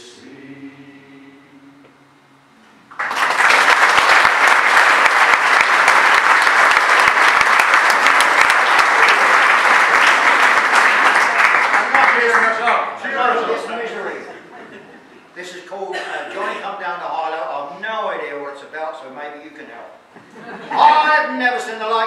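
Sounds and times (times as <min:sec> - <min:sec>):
male choir singing a cappella: 0:00.0 - 0:02.4
audience applause: 0:02.9 - 0:12.9.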